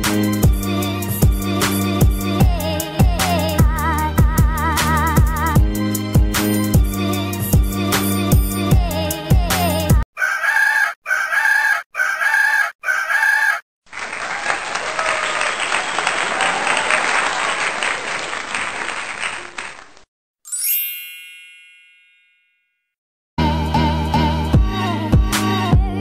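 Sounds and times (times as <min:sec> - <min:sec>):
background music: 0:00.0 - 0:10.0
rooster crowing: 0:10.2 - 0:13.6, 0:14.2 - 0:17.4
crowd applauding: 0:13.9 - 0:20.1.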